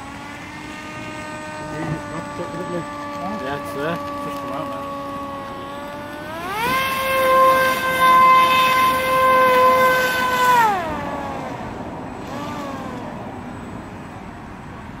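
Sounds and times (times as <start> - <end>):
siren winding down: 0.0 - 13.3.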